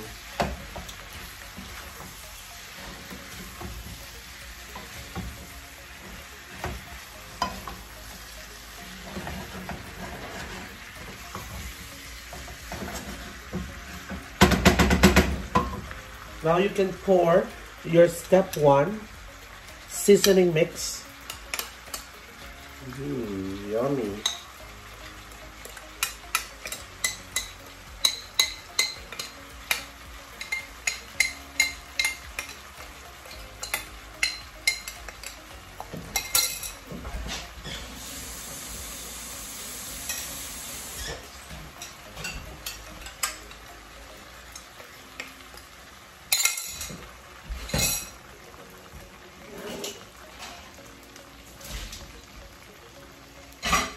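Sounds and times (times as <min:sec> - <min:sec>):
shrimp sizzling in a pan: 0:00.0 - 0:53.9.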